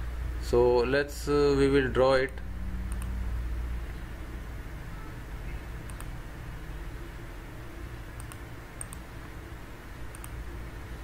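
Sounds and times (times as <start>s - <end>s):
steady low hum: 0.0s - 11.0s
computer mouse clicks: 2.3s - 3.2s, 5.8s - 6.2s, 8.2s - 9.1s, 10.1s - 10.4s.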